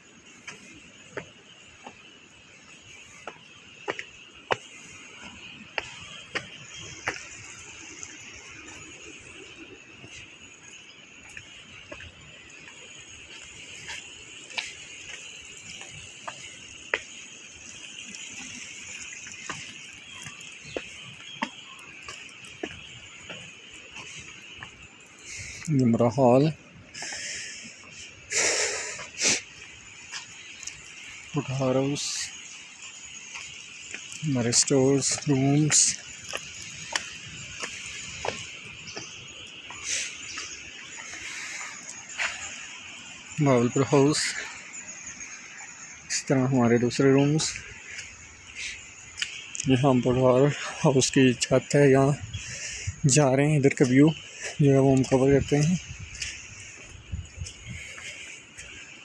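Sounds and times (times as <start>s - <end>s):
insect chorus: 0.0s - 59.0s
steady high hiss: 0.0s - 59.0s
footsteps walking: 3.2s - 7.5s, 19.4s - 24.8s, 33.3s - 42.6s, 53.8s - 58.8s.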